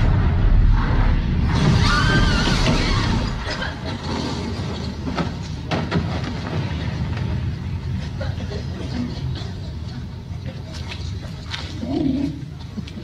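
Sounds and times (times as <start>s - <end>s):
explosion rumble: 0.0s - 8.5s.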